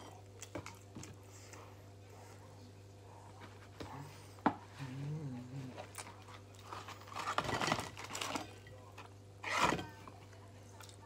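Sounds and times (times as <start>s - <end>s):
paper packaging crinkling: 5.9s - 8.6s.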